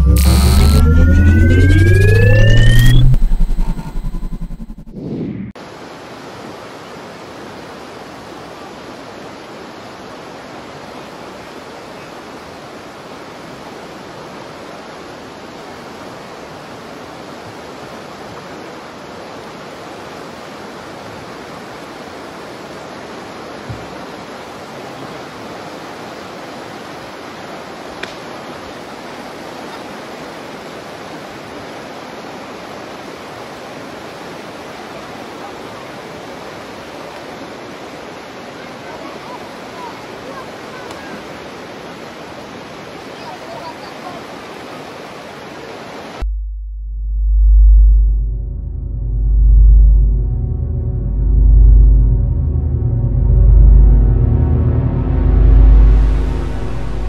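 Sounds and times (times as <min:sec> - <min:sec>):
river rapids rushing: 0:05.6 - 0:46.2
low thump: 0:46.2 - 0:56.4.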